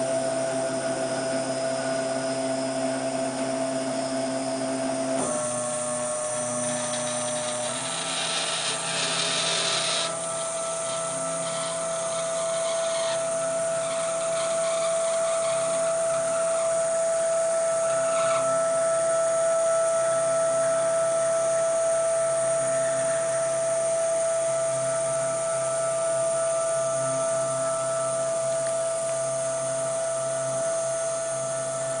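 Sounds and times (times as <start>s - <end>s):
drive motors whining: 5.2s - 18.8s.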